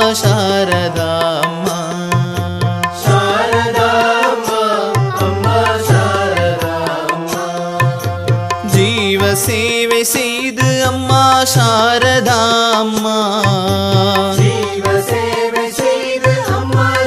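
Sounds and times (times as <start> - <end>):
tabla rhythm: 0.0 - 17.0.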